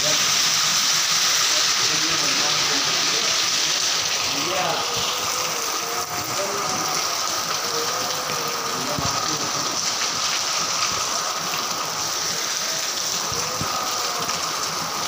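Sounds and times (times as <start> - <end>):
heavy rain: 0.0 - 15.0
water streaming off tin roofs: 0.0 - 15.0.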